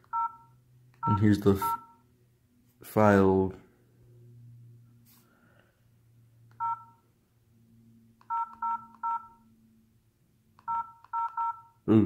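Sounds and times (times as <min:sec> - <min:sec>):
phone keypad beeps: 0:00.0 - 0:02.0, 0:06.6 - 0:07.0, 0:08.2 - 0:09.4, 0:10.6 - 0:11.8.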